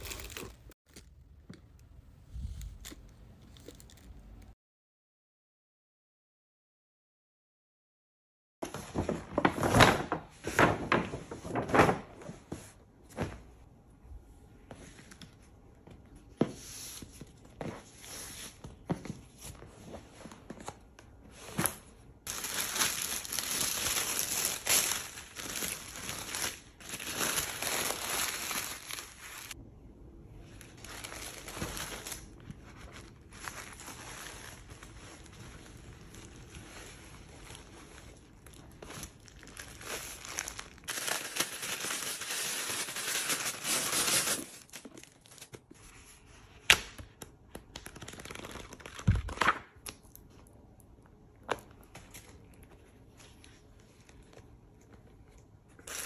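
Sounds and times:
tissue paper crinkling: 0.0 - 0.7, 22.3 - 29.6, 30.6 - 45.4, 47.8 - 49.5.

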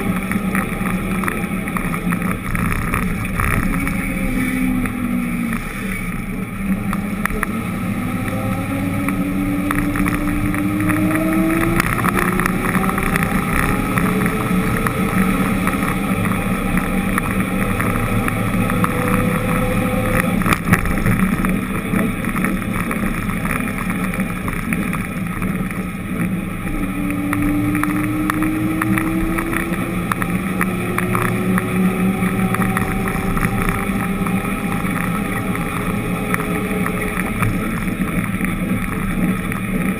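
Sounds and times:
road and wind noise: 0.0 - 39.9
vehicle engine accelerating: 0.0 - 39.9.

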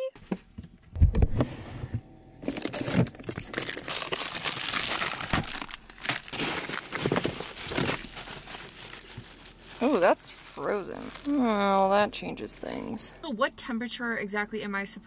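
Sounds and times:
plastic bags crinkling: 2.4 - 13.2.

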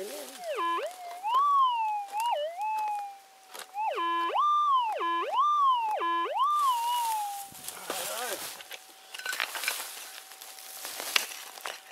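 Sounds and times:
metal detector tone: 0.0 - 7.6.

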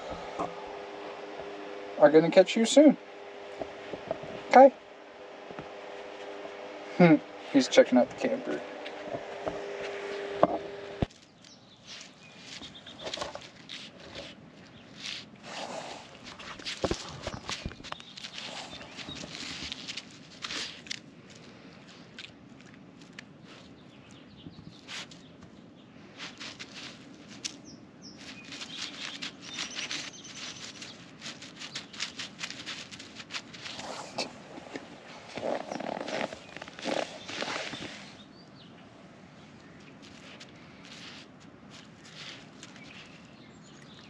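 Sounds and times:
steady hum: 0.0 - 22.5
scratching and rustling: 5.4 - 23.8, 24.6 - 38.3, 39.7 - 44.0
puppy paws pattering: 11.0 - 15.4, 16.0 - 24.2, 26.1 - 38.2, 39.6 - 44.0.

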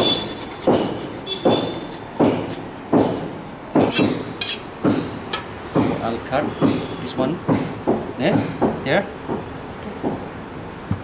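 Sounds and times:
blade chopping on plastic board: 0.0 - 5.2.

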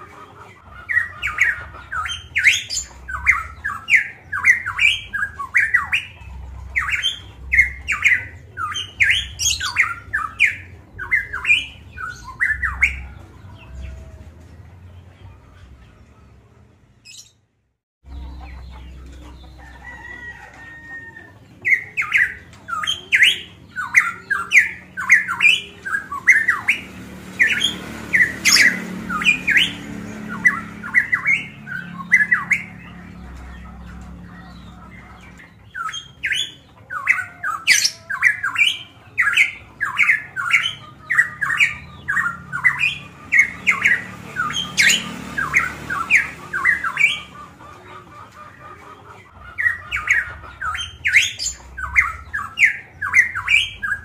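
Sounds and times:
bird squawking song: 0.0 - 15.8, 17.0 - 17.4, 18.0 - 54.0.

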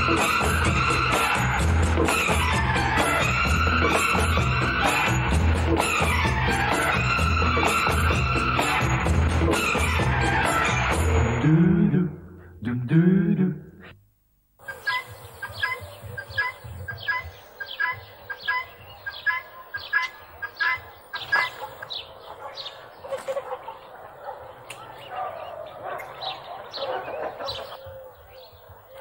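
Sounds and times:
farmyard fowl calling harshly: 14.6 - 22.0, 22.7 - 23.9.

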